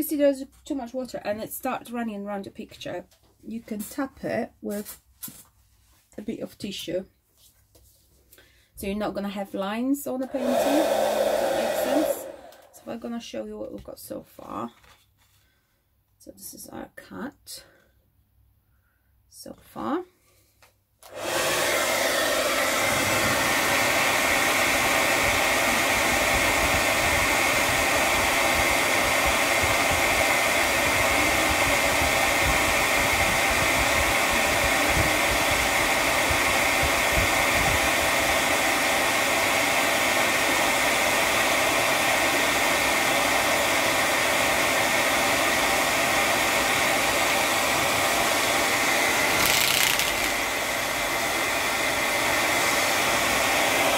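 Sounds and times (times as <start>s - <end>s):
hair dryer running: 10.2s - 13.0s, 21.0s - 53.9s.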